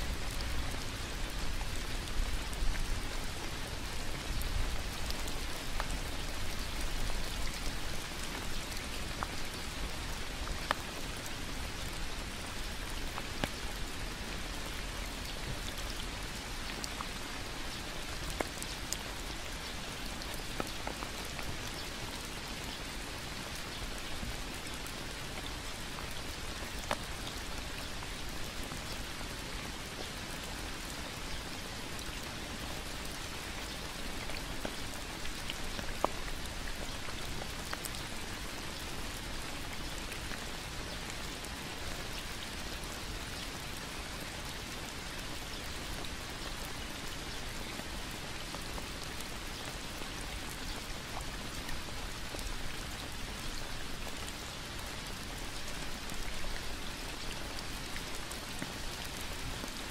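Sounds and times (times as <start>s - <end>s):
raindrop ticks: 0.0s - 59.7s
rain on leaves: 0.0s - 59.9s.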